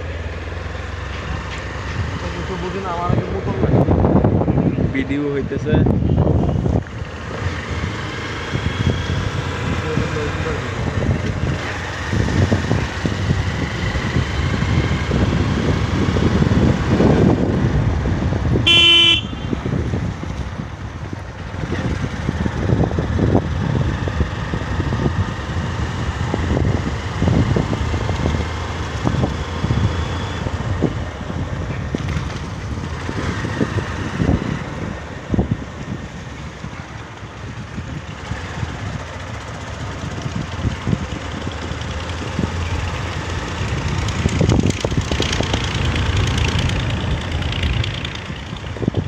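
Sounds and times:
vehicle road rumble: 0:00.0 - 0:49.0
wind on microphone: 0:03.1 - 0:49.0
vehicle horn beep: 0:18.6 - 0:19.6.

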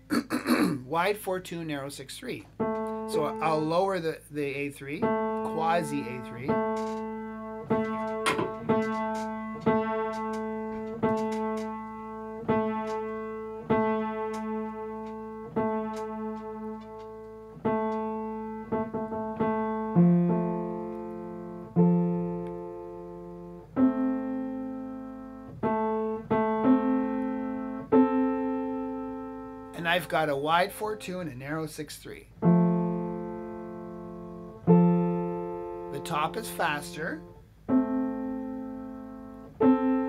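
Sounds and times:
piano intervals ringing: 0:00.8 - 0:40.0
piano octave struck: 0:02.5 - 0:03.9, 0:04.9 - 0:31.4.

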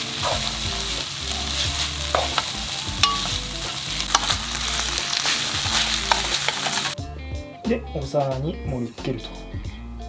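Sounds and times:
food sizzling in a frying pan: 0:00.0 - 0:07.0
chopsticks clicking against pan: 0:02.1 - 0:04.4, 0:05.1 - 0:07.0.

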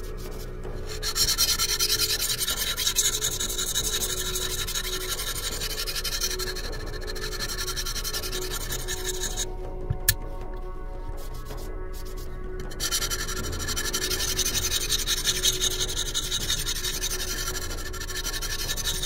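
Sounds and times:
sharpening stone scraping knife: 0:00.8 - 0:09.5, 0:12.7 - 0:19.0.

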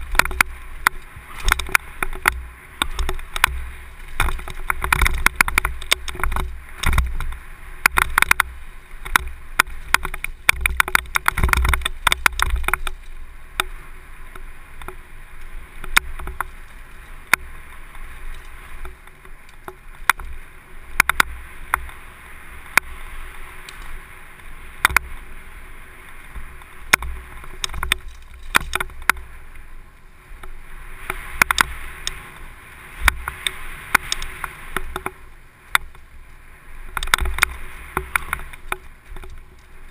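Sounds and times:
bike chain and frame rattling: 0:00.0 - 0:24.0, 0:26.5 - 0:29.4, 0:36.9 - 0:39.9
wind and tyre noise: 0:00.0 - 0:39.9.

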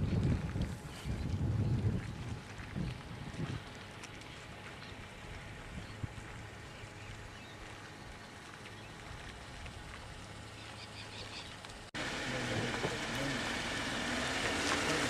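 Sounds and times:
steady hiss with low rumble: 0:00.0 - 0:14.8.

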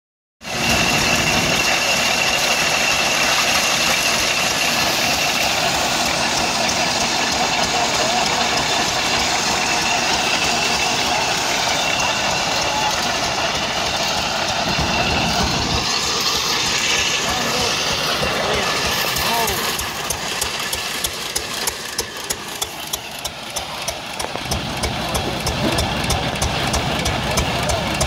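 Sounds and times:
corn sheller clattering: 0:00.4 - 0:28.0
thin high whine: 0:00.5 - 0:20.4.

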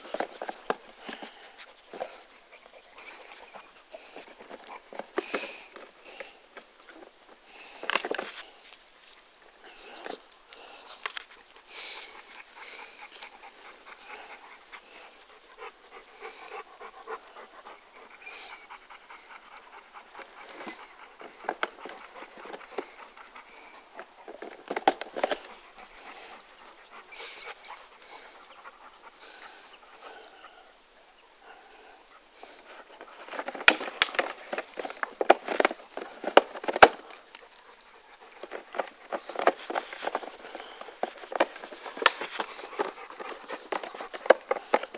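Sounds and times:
dog panting: 0:00.0 - 0:44.9
clicks and rustling: 0:32.9 - 0:44.9.

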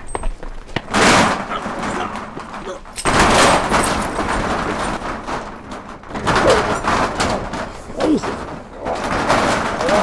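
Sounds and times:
heavy thuds and blows: 0:00.0 - 0:10.0
strained cries or grunts: 0:06.3 - 0:10.0.

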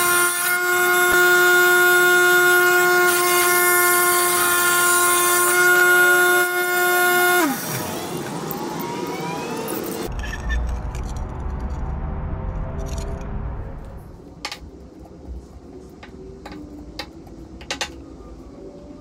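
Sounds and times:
wet tile saw whining: 0:00.0 - 0:10.1.

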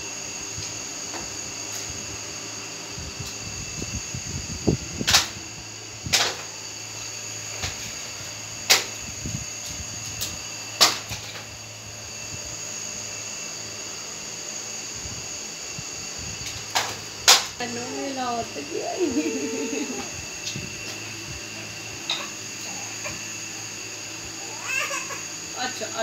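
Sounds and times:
fan or motor whirring: 0:00.0 - 0:26.0.

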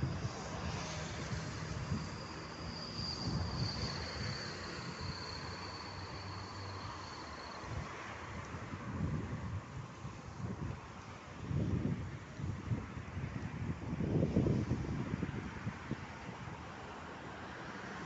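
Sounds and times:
high insect trill: 0:00.0 - 0:09.3
wind buffeting microphone: 0:08.5 - 0:16.7.

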